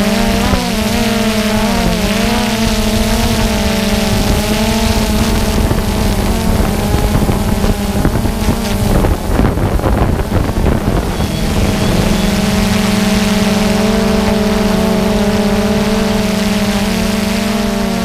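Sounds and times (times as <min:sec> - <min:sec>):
drone propellers humming: 0:00.0 - 0:18.0
gusty rushing: 0:00.0 - 0:18.0.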